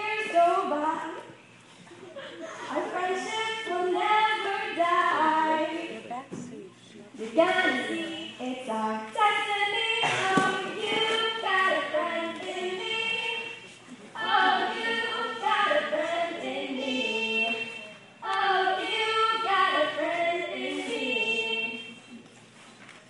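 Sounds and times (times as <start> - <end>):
group of voices singing: 7.3 - 22.0.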